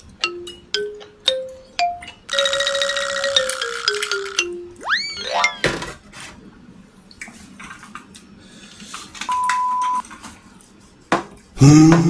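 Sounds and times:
electronic beep: 0:04.8 - 0:05.7.

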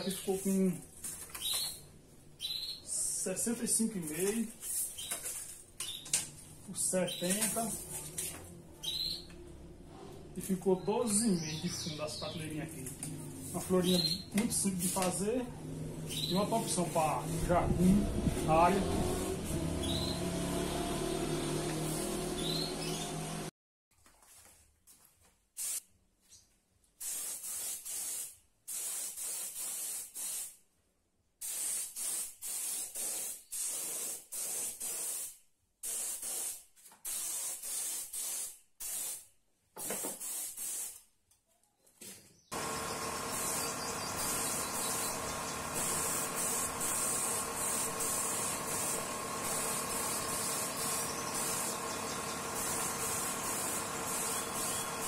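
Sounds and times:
spray gun hissing in bursts: 0:13.4 - 0:15.2, 0:18.4 - 0:20.6, 0:21.4 - 0:22.9, 0:25.6 - 0:25.8, 0:27.0 - 0:30.6, 0:31.4 - 0:39.2, 0:39.8 - 0:41.0, 0:42.5 - 0:55.0
steady machine drone with hiss: 0:42.6 - 0:55.0.

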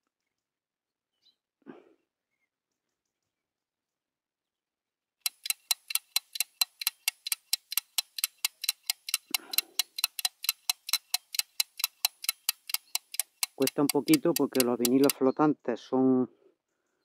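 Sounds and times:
clock ticking: 0:05.2 - 0:15.2.

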